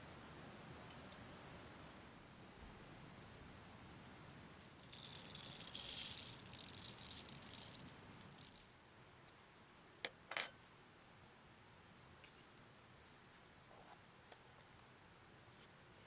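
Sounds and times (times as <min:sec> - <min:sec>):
coffee beans rattling on metal: 0:04.6 - 0:08.8.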